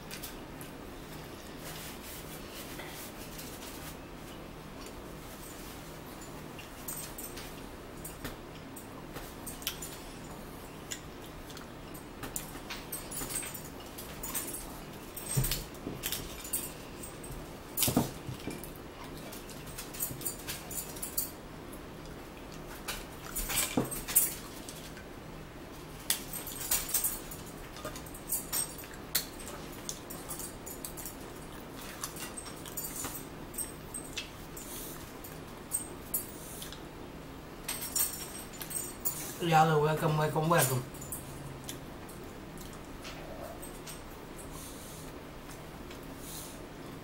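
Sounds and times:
chewing and lip-smacking: 10.8 - 12.6, 36.6 - 36.9, 41.6 - 43.4.

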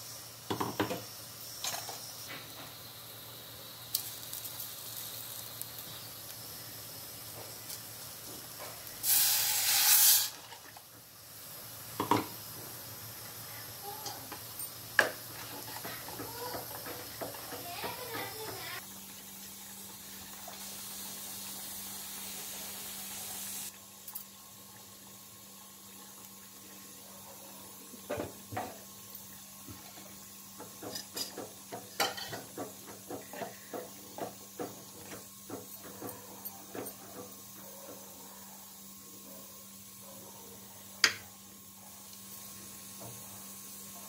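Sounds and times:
thick gravy bubbling and popping: 2.4 - 13.4, 23.7 - 38.1.

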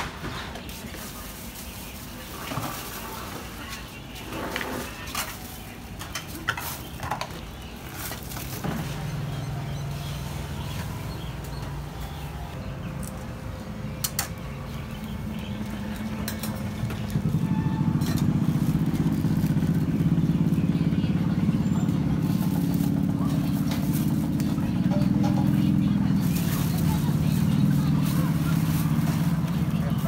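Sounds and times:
vehicle engine running: 1.2 - 30.0
utensils and dishes clinking: 2.3 - 10.0, 15.9 - 19.1.

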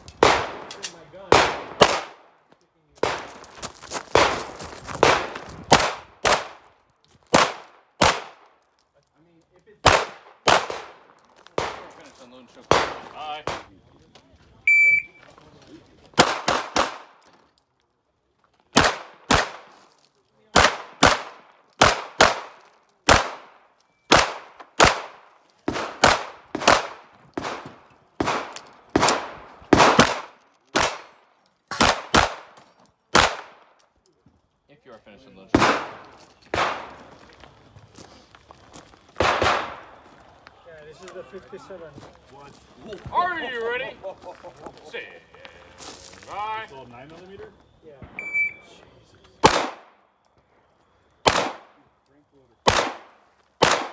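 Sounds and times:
pistol shots with echo: 0.2 - 2.3, 5.0 - 6.6, 7.3 - 8.4, 9.8 - 12.0, 12.6 - 13.7, 16.2 - 17.2, 18.8 - 19.7, 20.5 - 33.7, 35.5 - 37.1, 39.2 - 40.0, 49.4 - 50.0, 51.2 - 51.9, 52.6 - 53.9.

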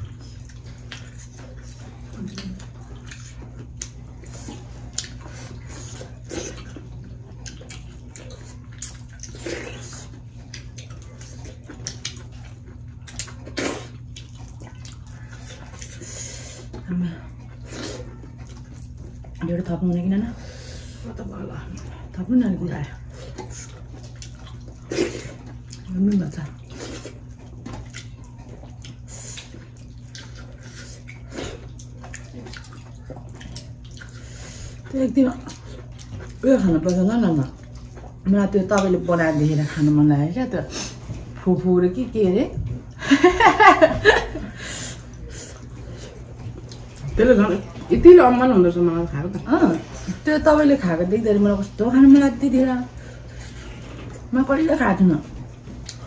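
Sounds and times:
steady low hum: 0.0 - 56.0
wet chewing: 0.0 - 56.0
lip smacks: 0.1 - 6.8, 7.4 - 16.1, 55.7 - 56.0.

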